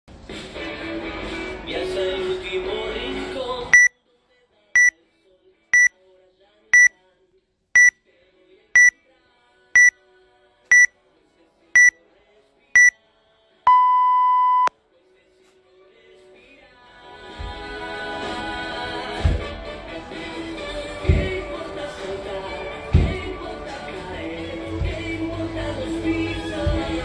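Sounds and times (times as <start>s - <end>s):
music: 0.1s - 13.6s, 14.7s - 27.0s
long low timer beep: 13.7s - 14.7s
short high timer beeps: 13.7s - 14.7s.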